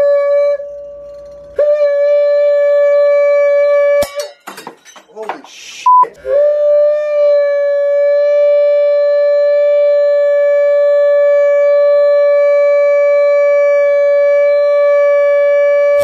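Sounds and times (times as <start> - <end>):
man singing a loud steady note: 5.7 - 15.0.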